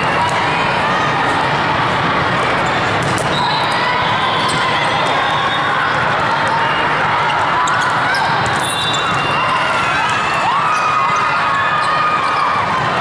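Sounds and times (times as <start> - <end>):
many voices in sports hall: 0.0 - 13.0
volleyballs hit and bouncing: 2.0 - 3.4.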